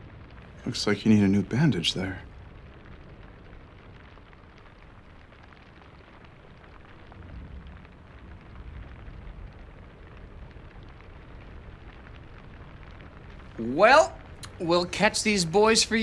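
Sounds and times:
crackling hiss: 0:00.0 - 0:16.0
low ambient rumble: 0:00.0 - 0:16.0.

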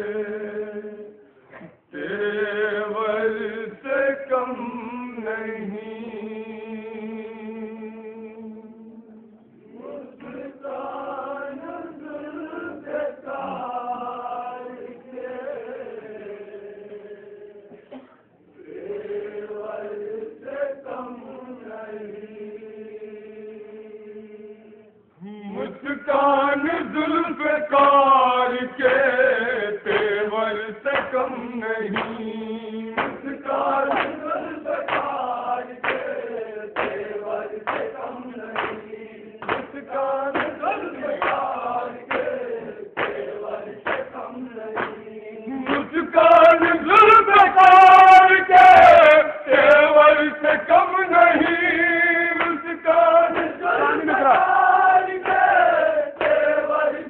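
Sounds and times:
men chanting a lament: 0:09.8 - 0:17.4, 0:25.2 - 0:57.0.

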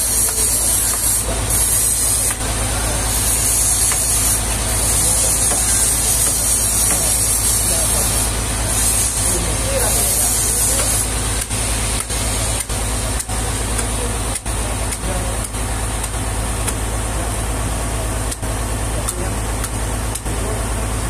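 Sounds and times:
engine droning: 0:00.0 - 0:21.0
hammer tapping wood: 0:05.4 - 0:07.2.

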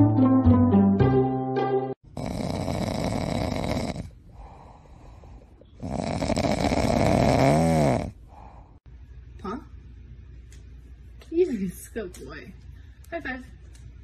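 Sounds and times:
dog snoring: 0:02.1 - 0:04.9, 0:05.8 - 0:08.2.

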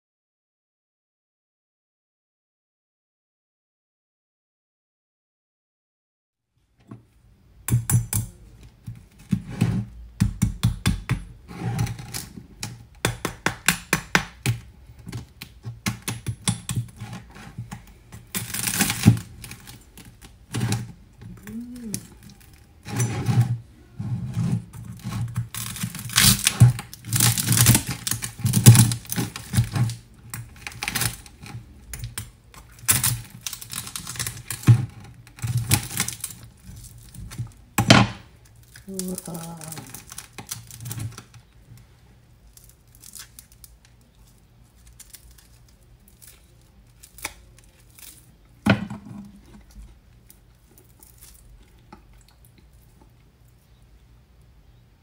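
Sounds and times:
knife crunching crispy skin: 0:18.2 - 0:23.0, 0:25.0 - 0:34.7, 0:35.3 - 0:37.6, 0:38.4 - 0:41.3, 0:42.5 - 0:43.9, 0:44.6 - 0:48.3.

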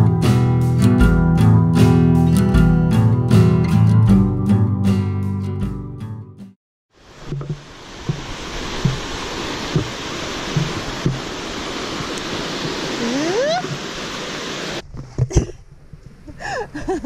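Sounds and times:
mountain stream rushing: 0:07.0 - 0:14.8
soft low thumps: 0:07.3 - 0:09.1.

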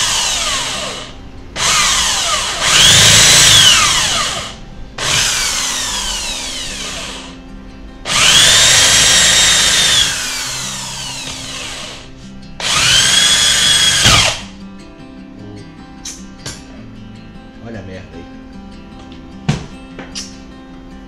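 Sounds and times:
electric drill boring into wood: 0:00.0 - 0:07.4, 0:08.1 - 0:14.5.

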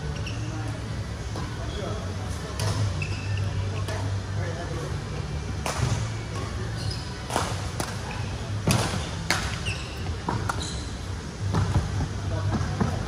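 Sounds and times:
shoes squeaking on court floor: 0:00.0 - 0:00.8, 0:02.6 - 0:03.9, 0:05.9 - 0:11.8
racket striking shuttlecock: 0:07.3 - 0:08.0.

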